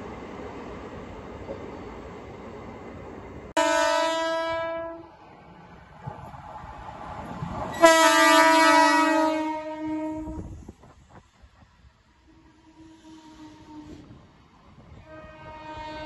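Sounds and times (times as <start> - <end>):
train running noise: 0.0 - 16.0
train horn blasts: 3.6 - 5.1, 7.7 - 10.6, 12.2 - 14.1, 14.9 - 16.0.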